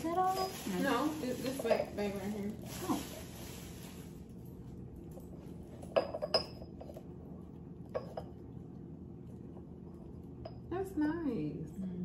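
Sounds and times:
ceramic kitchenware clinking: 0.0 - 2.3, 5.7 - 7.0, 7.9 - 8.4.

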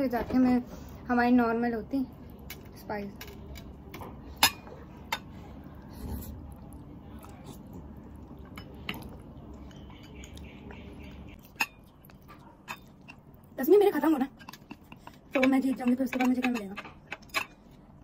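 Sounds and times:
chopsticks clicking on bowls: 14.3 - 17.8.

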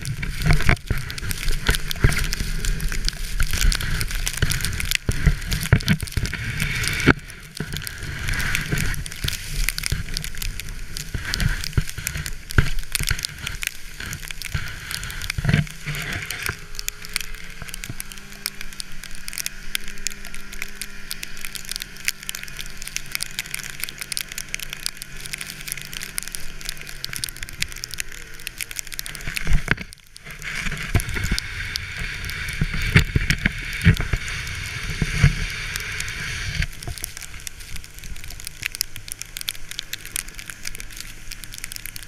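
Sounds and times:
faint snowmobile engine hum: 0.0 - 42.0
sled hissing over snow: 30.3 - 37.9.

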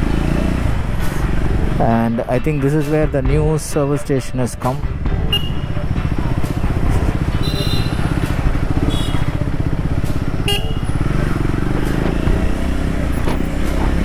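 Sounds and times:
motorcycle engine running: 4.8 - 14.0.

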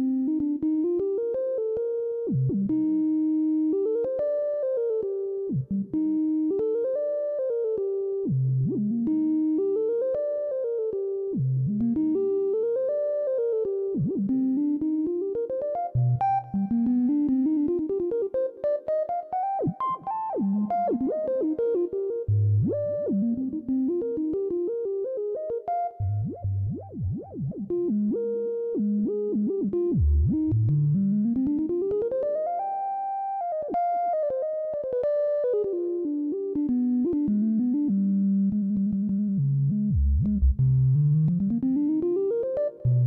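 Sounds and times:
low bass notes: 30.0 - 31.3, 38.8 - 41.8.

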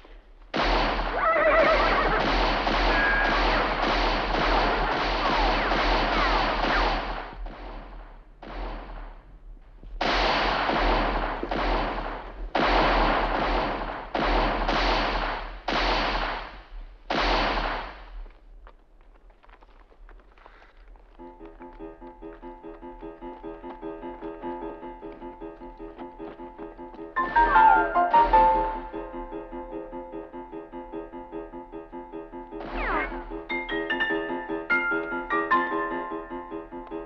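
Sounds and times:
gunshots echoing: 0.5 - 18.3, 27.2 - 29.5, 32.6 - 33.8.

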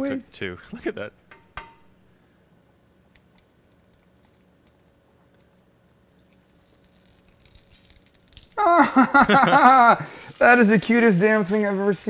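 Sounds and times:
butter sizzling on a griddle: 9.4 - 12.0.

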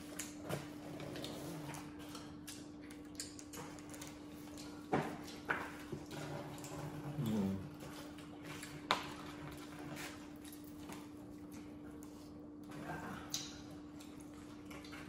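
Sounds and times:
chewing and lip smacks: 0.0 - 5.9, 6.5 - 15.0.

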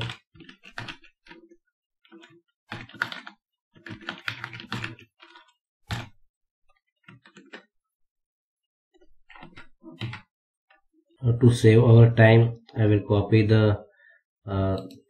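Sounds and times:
typing on computer keyboard: 0.0 - 6.2, 7.0 - 7.7, 9.3 - 10.3.

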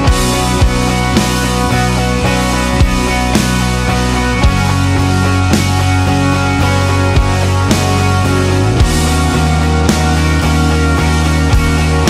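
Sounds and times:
full band music: 0.0 - 12.0
heavy low bass: 0.0 - 12.0.

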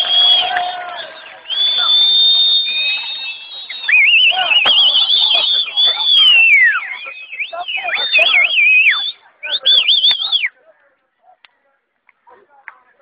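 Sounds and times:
crowd making high-pitched warbling calls: 0.0 - 10.6.

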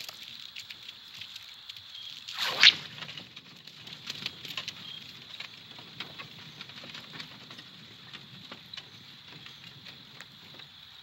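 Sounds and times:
light clicks and patters: 0.0 - 2.3, 2.9 - 11.0
steady high hiss: 0.0 - 3.2.

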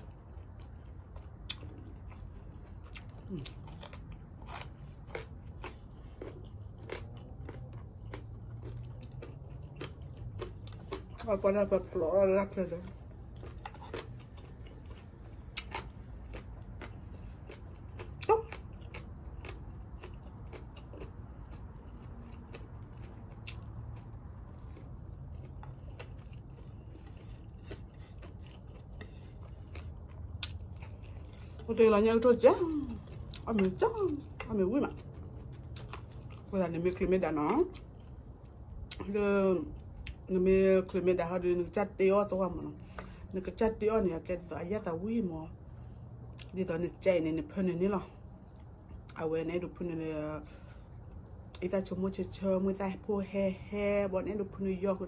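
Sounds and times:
person chewing crunchy food: 0.0 - 40.3, 45.7 - 46.6
low steady rumble: 0.0 - 55.0.

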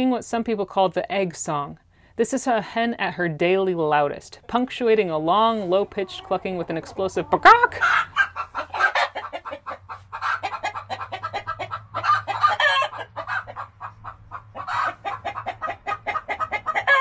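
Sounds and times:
hen clucking and calling: 4.4 - 17.0.

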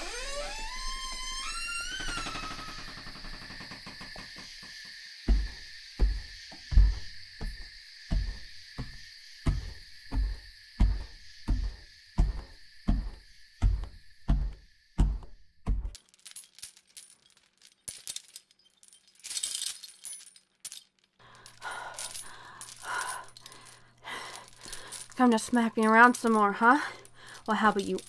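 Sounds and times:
heavy footsteps thudding: 5.3 - 16.0
metallic jingling: 5.3 - 28.0.

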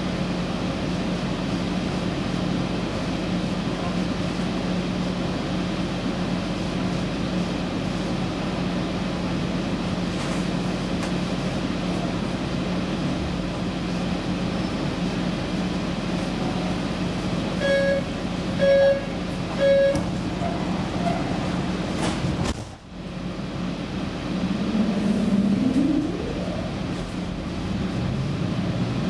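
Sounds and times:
train equipment humming: 0.0 - 29.0
short electronic beeps: 17.6 - 20.0.

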